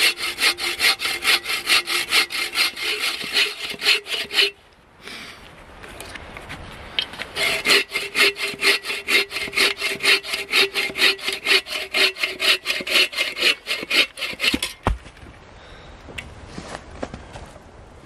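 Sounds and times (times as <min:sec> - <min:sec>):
bow saw cutting log: 0:00.0 - 0:04.6, 0:07.3 - 0:14.8.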